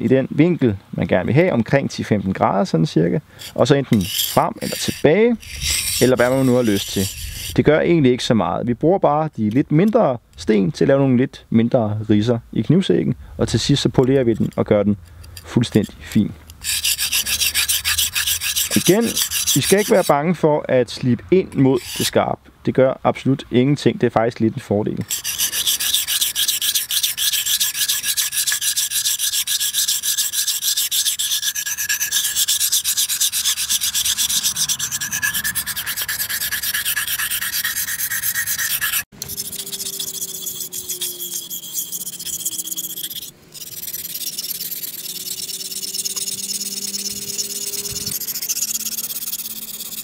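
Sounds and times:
knife scraping on whetstone: 0:03.4 - 0:07.7, 0:15.2 - 0:20.1, 0:21.8 - 0:22.2, 0:25.0 - 0:50.0.

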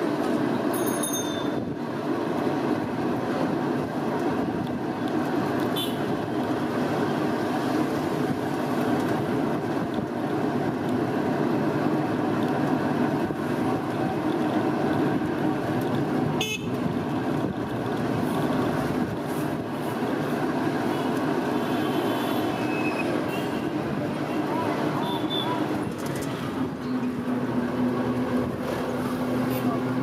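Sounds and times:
vehicle road and engine noise: 0:00.0 - 0:30.0
car horn toot: 0:05.8 - 0:06.0, 0:16.4 - 0:16.8.

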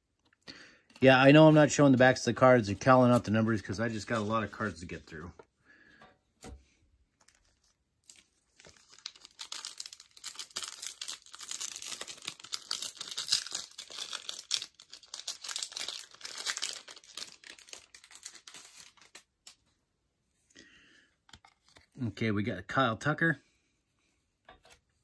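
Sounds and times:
wrapper being torn and crinkled: 0:07.2 - 0:19.6.

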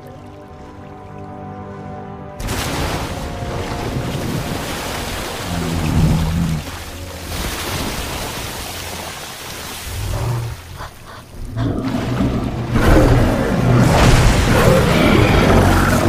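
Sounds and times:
dramatic film score: 0:00.0 - 0:16.0
water crashing: 0:02.4 - 0:16.0
giant ape roaring: 0:11.6 - 0:16.0.

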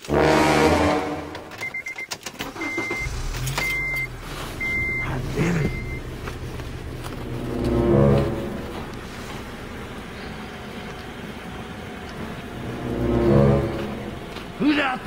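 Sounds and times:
deep horn-like tone: 0:00.0 - 0:01.5, 0:06.9 - 0:09.3, 0:12.6 - 0:14.4
dashboard warning chime beeping: 0:01.3 - 0:06.5
car engine running: 0:02.4 - 0:15.0.

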